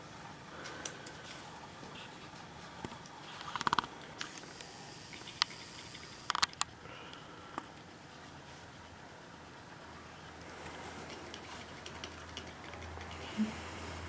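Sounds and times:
kitten claws scratching carpet: 0:10.6 - 0:13.3.

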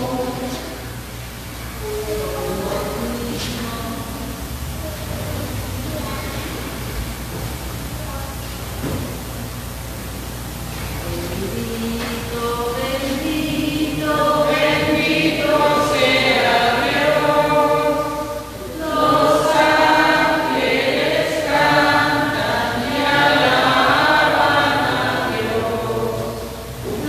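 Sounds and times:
voices singing a slow hymn: 0:00.0 - 0:06.9, 0:10.8 - 0:27.0.

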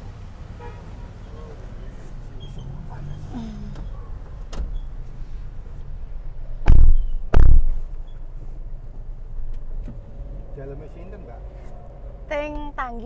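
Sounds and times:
car doors shutting: 0:02.4 - 0:05.1, 0:09.4 - 0:10.4
steady low rumble: 0:05.3 - 0:13.0.

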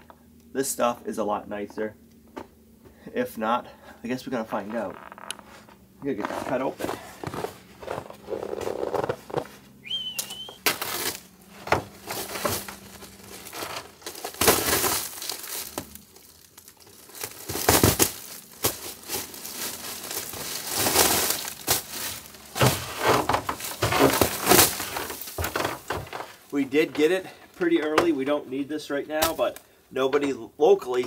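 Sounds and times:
plastic wrap crinkling: 0:04.7 - 0:26.6.

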